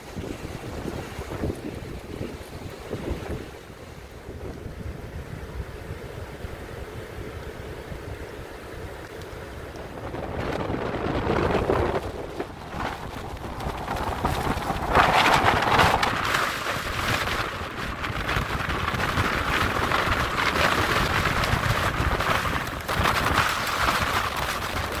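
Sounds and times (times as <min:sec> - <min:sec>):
wind buffeting microphone: 0:00.0 - 0:25.0
surf breaking on cobble beach: 0:09.8 - 0:25.0.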